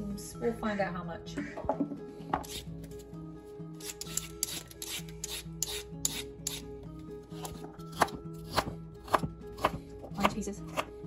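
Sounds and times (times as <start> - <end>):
background music low notes: 0.0 - 11.0
peeler scraping carrot: 2.4 - 3.0, 3.8 - 6.7, 7.4 - 9.8
knife chopping on plastic board: 7.4 - 10.9.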